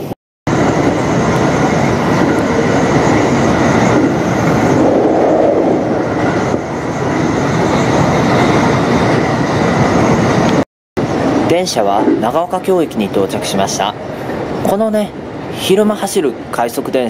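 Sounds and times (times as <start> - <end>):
electric train running: 0.5 - 11.4.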